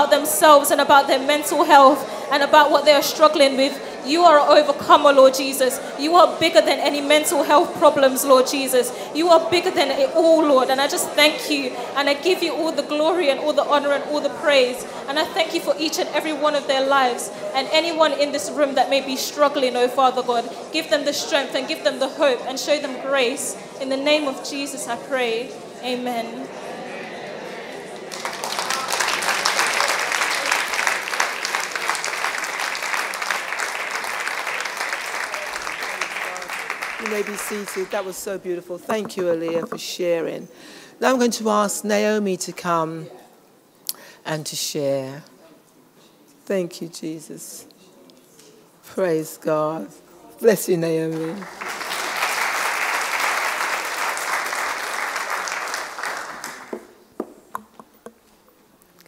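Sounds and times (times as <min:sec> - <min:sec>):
audience applauding: 0:28.1 - 0:38.0, 0:51.2 - 0:56.9.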